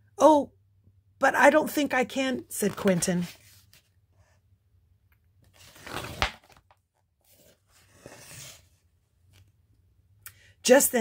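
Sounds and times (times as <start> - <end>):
paper page turning: 5.4 - 9.5.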